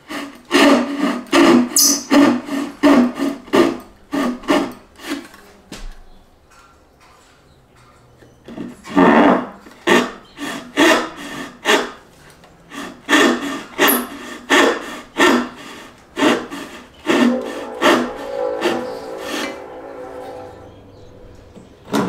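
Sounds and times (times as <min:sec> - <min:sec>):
hand saw cutting wood: 0:00.0 - 0:05.4, 0:08.8 - 0:12.1, 0:12.7 - 0:20.6.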